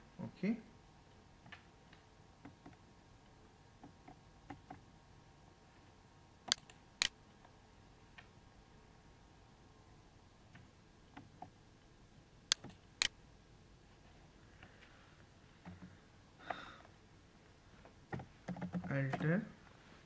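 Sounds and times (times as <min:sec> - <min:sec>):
computer controls clicking: 0:06.4 - 0:07.2, 0:12.5 - 0:13.2, 0:18.1 - 0:19.4.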